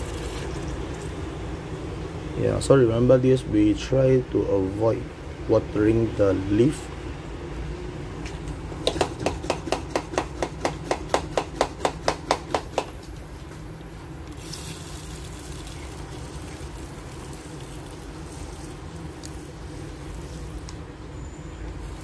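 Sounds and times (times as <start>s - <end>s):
water sprayer pumping strokes: 14.3s - 20.8s, 21.7s - 22.0s
water spraying onto soil: 14.4s - 20.8s.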